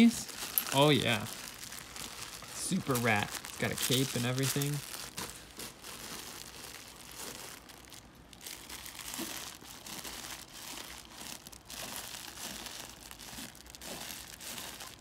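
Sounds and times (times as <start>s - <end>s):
crinkly dog toy crackling: 0.0s - 15.0s.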